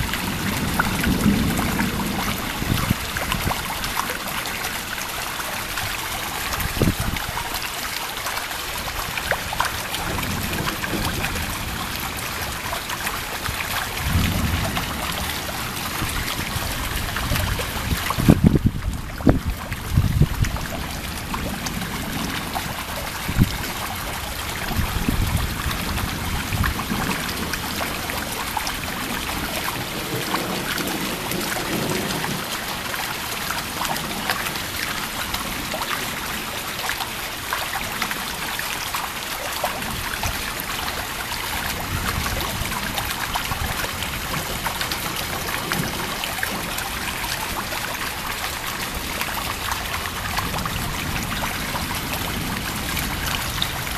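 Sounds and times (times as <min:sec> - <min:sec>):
low thunder rumbles: 0:00.0 - 0:04.2, 0:09.5 - 0:32.7
heavy rain pattering: 0:00.0 - 0:53.9
trickling water: 0:00.0 - 0:53.9.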